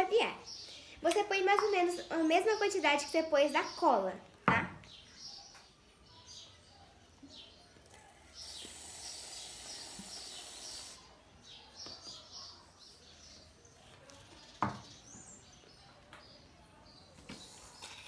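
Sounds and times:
birds chirping: 0.0 - 18.0
aerosol can hissing: 8.4 - 11.1.

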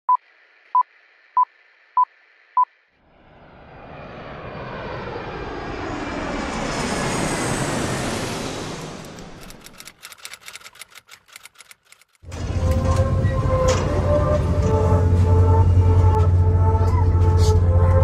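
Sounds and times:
jet airplane flyby: 3.0 - 10.0, 12.2 - 18.0.

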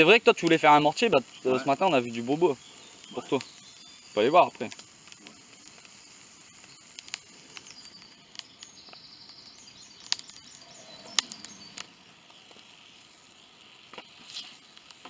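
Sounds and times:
insects: 0.0 - 15.0
sharp clicks: 4.6 - 12.0.

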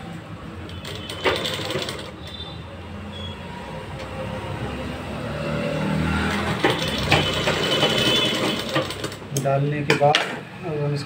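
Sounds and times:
sewing machine running: 0.8 - 2.2, 6.4 - 9.3.

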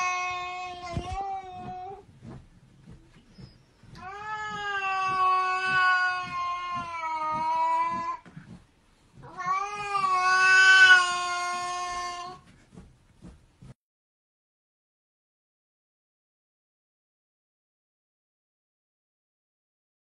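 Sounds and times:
cat yowling: 4.0 - 8.2, 9.2 - 12.4.

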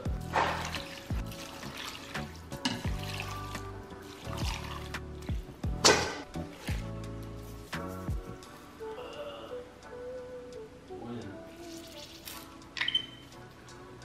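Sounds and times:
background music with drum beat: 0.0 - 8.6
water pouring into a pot: 0.3 - 5.4
water splash: 0.3 - 6.9.

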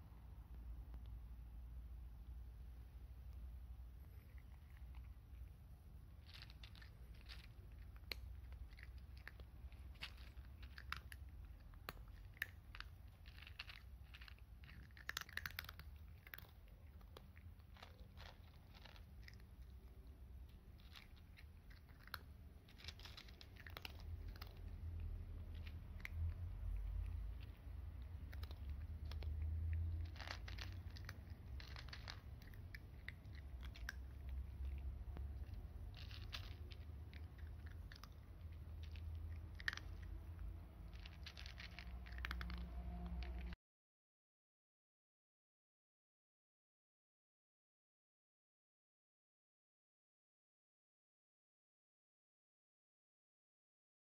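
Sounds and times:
cat crunching dry kibble: 2.8 - 43.6.

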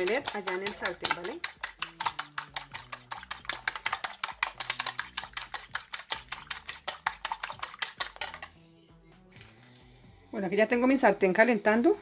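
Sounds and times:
whisk clicking against ceramic bowl: 0.0 - 8.5.

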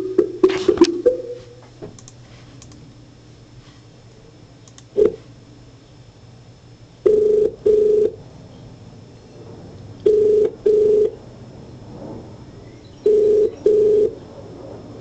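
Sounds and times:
phone keypad tone: 7.0 - 8.2, 10.0 - 11.2, 13.0 - 14.2
telephone ringback tone: 7.0 - 8.2, 10.0 - 11.2, 13.0 - 14.2.

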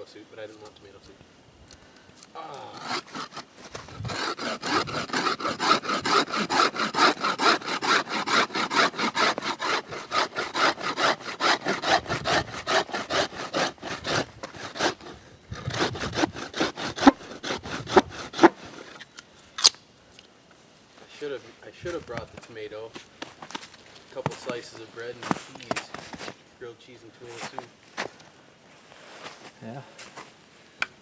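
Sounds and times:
hand saw cutting wood: 2.4 - 19.0.

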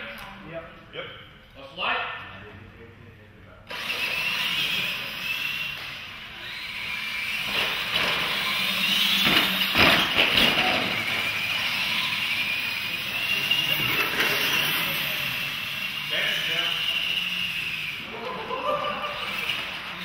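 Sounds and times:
electric motors whining: 3.6 - 20.0.

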